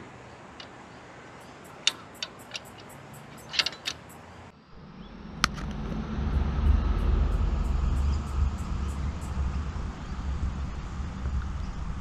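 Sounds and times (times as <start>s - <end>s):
metallic clicks of trailer coupling: 1.4s - 4.3s.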